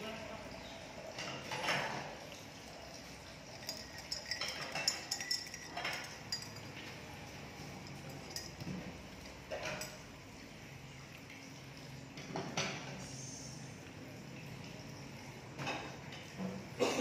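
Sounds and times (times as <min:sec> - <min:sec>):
spoon clinking against glass mug: 0:03.4 - 0:10.1.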